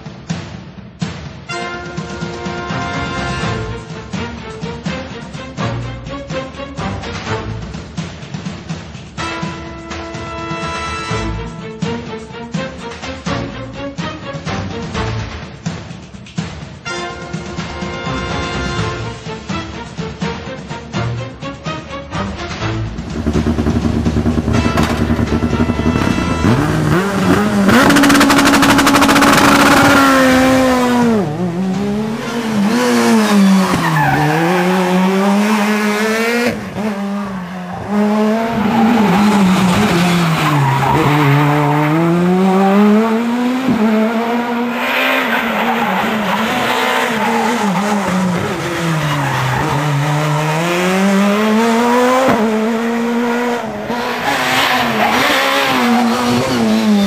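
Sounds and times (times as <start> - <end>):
rally car engine revving: 22.2 - 57.0.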